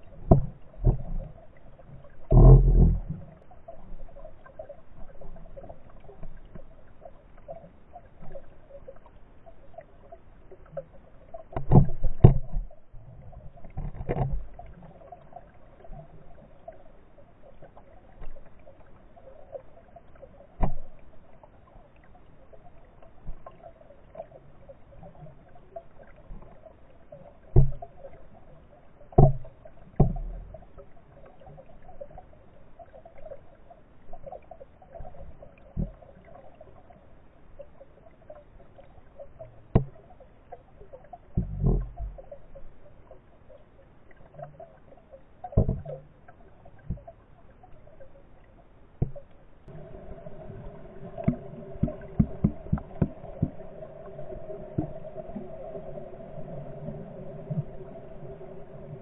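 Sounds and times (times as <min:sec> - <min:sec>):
faint steady hum: 0:00.0 - 0:59.0
muffled underwater sloshing: 0:00.0 - 0:59.0
sharp knocks or splashes: 0:51.2 - 0:53.6.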